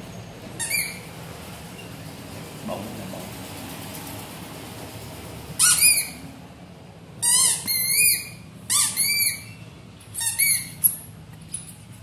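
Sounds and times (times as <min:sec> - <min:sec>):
squeaky rubber toy: 0:00.6 - 0:01.1, 0:05.6 - 0:06.2, 0:07.2 - 0:11.1.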